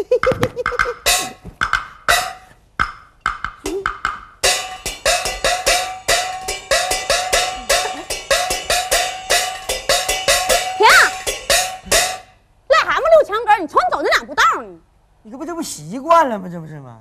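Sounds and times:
gong and clapper strokes: 0:03.6 - 0:12.3.

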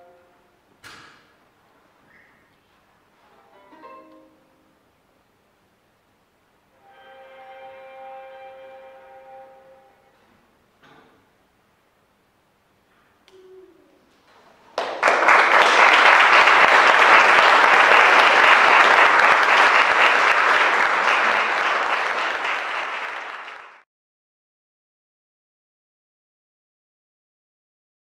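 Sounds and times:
audience applauding: 0:14.7 - 0:23.8.

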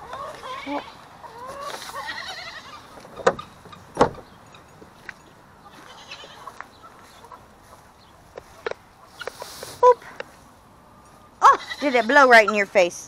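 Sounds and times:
goat bleating: 0:00.3 - 0:01.0, 0:01.8 - 0:02.9, 0:05.6 - 0:06.6, 0:11.4 - 0:12.3.

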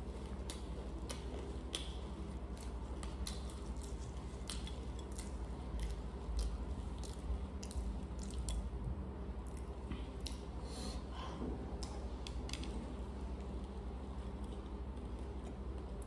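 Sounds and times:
chewing: 0:00.0 - 0:08.7, 0:09.4 - 0:10.5
low steady hum: 0:00.0 - 0:16.0.

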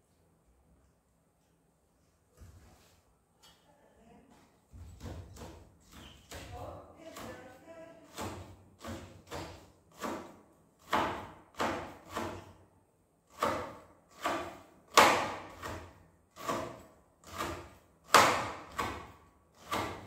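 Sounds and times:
knife chopping meat on a board: 0:04.9 - 0:07.5, 0:08.1 - 0:12.6, 0:13.3 - 0:20.0.

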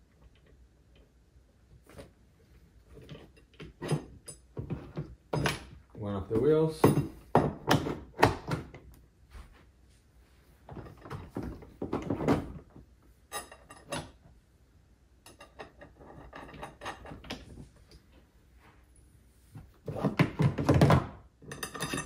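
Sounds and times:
plastic parts knocking and clicking: 0:19.8 - 0:22.0.

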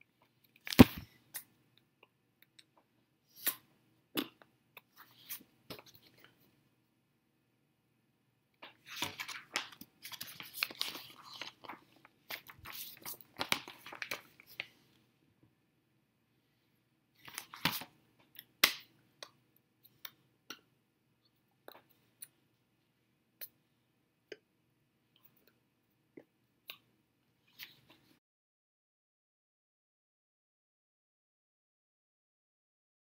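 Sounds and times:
paper pages rustling and flicking: 0:00.7 - 0:01.1, 0:08.6 - 0:14.8, 0:17.2 - 0:17.9.

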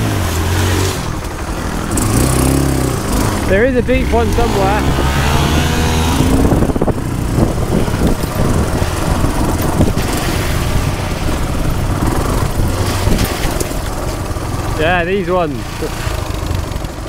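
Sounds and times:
off-road motorcycle engine: 0:00.0 - 0:17.0
wind rushing: 0:00.8 - 0:14.7
rattling from stony surface: 0:01.0 - 0:14.6.

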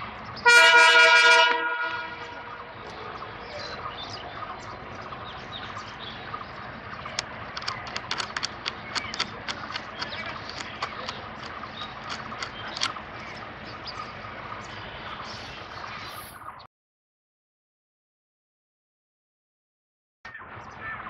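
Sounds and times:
train running: 0:00.0 - 0:16.4
locomotive horn blast: 0:00.4 - 0:02.8
sharp clicks and knocks: 0:07.0 - 0:13.4.

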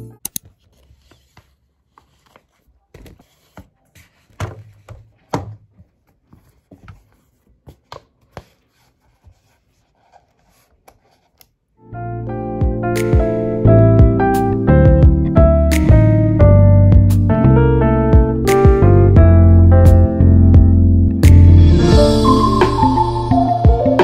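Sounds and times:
paper and plastic rustling: 0:00.4 - 0:11.2.

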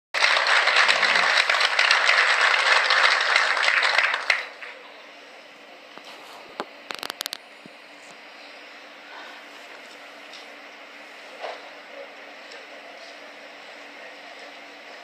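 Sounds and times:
audience applauding: 0:00.2 - 0:04.9.

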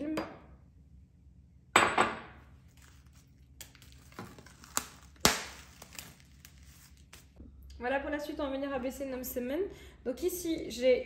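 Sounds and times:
cling film crinkling: 0:02.6 - 0:07.4.

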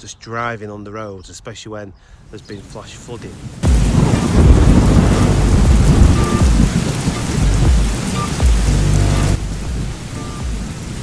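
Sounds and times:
heavy rain: 0:02.4 - 0:11.0
thunder rumbling: 0:03.4 - 0:11.0.

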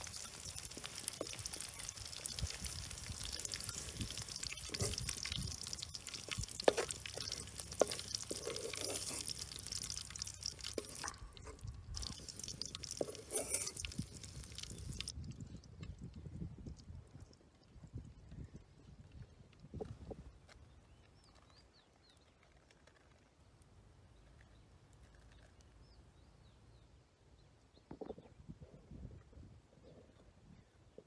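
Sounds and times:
hot oil crackling: 0:00.0 - 0:15.4.

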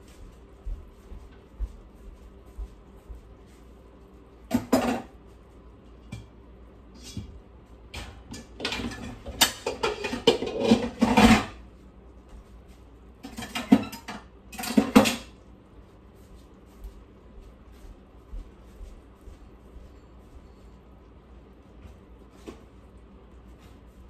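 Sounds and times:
dishes and cutlery clattering: 0:08.0 - 0:11.6, 0:13.2 - 0:15.3.

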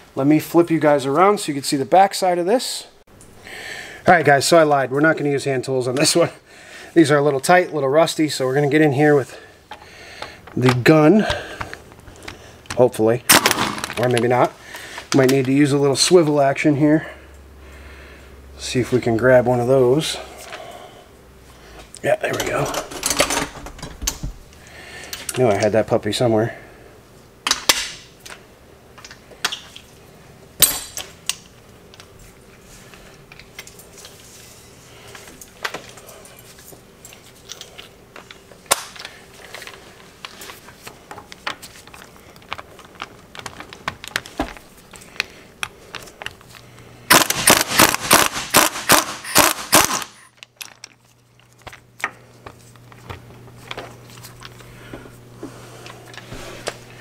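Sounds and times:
metal tools clinking: 0:22.2 - 0:23.7
impact wrench hammering: 0:47.1 - 0:50.3.

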